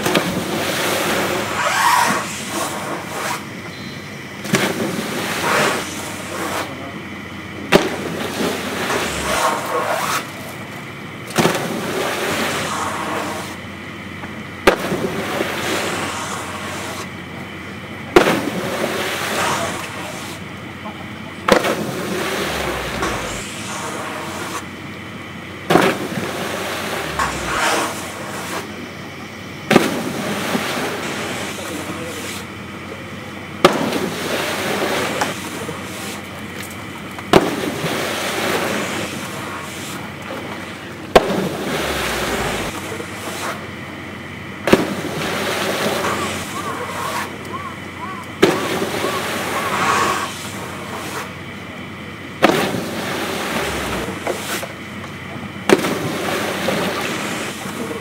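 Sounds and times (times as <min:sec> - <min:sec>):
people talking: 0:05.2 - 0:10.8, 0:15.0 - 0:24.7, 0:25.8 - 0:29.3, 0:30.1 - 0:37.3, 0:38.0 - 0:43.9, 0:44.9 - 0:54.4, 0:55.2 - 0:58.0.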